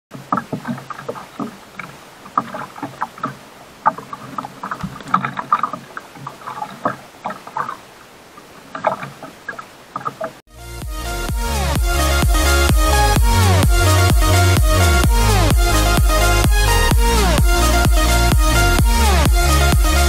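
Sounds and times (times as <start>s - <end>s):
knocks and slaps on boat: 0.1s - 7.8s
sea and wind hiss: 0.2s - 10.4s.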